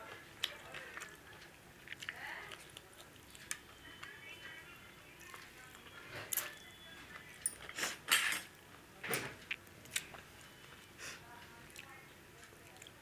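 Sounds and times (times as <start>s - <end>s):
chewing mouth noises: 0.1s - 4.2s, 9.4s - 13.0s.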